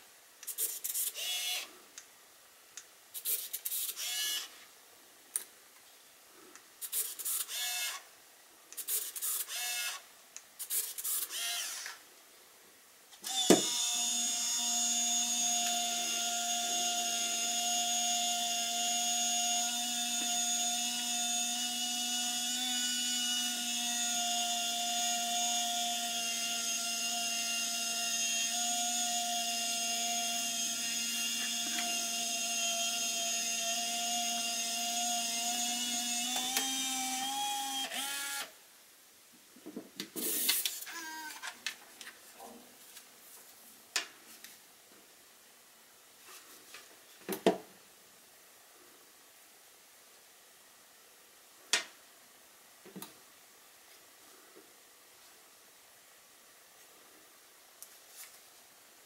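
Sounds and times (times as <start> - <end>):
camera motor whirring: 0.5 - 1.7, 3.2 - 4.5, 6.8 - 8.0, 8.8 - 10.0, 10.7 - 12.0, 13.3 - 38.5.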